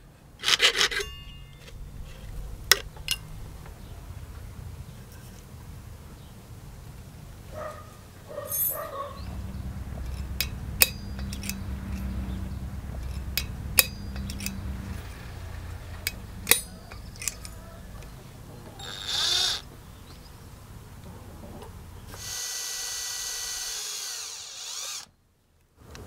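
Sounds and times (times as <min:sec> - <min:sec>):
metal punch clicks with ring: 0:10.1 - 0:12.1, 0:13.1 - 0:14.7, 0:16.0 - 0:17.6.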